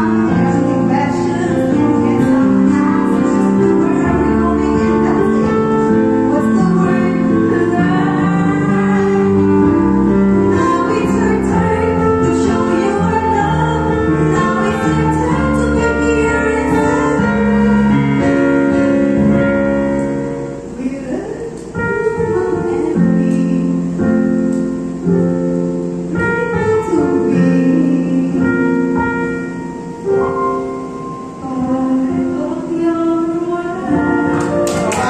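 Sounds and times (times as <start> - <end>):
woman singing slow song: 0.0 - 19.6, 20.8 - 24.6, 26.1 - 29.5, 31.4 - 35.0
instrumental backing track: 0.0 - 35.0.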